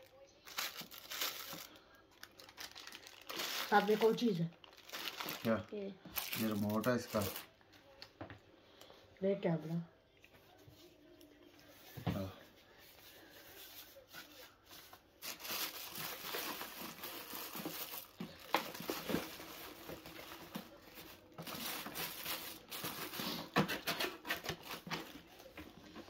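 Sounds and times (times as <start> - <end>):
packaging crinkling and rustling: 0.0 - 7.5, 14.8 - 26.0.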